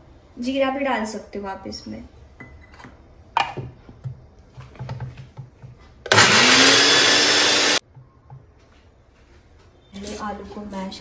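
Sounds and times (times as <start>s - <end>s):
mixer grinder motor grinding: 6.1s - 7.8s.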